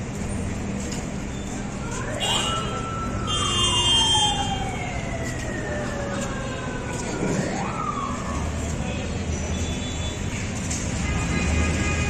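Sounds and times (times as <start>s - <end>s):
siren wailing: 1.9s - 8.6s.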